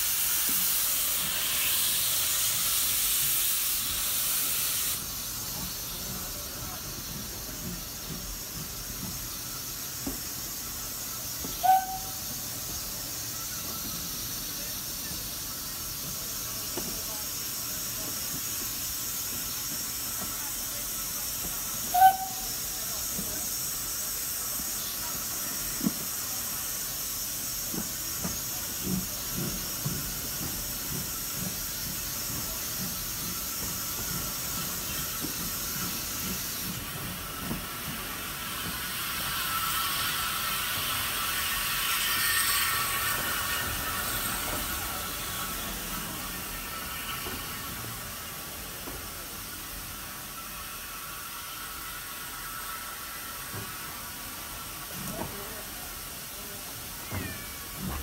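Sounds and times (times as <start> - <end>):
train wheels knocking on track: 0.0 - 4.4, 5.0 - 58.0
steam locomotive hiss: 0.0 - 58.0.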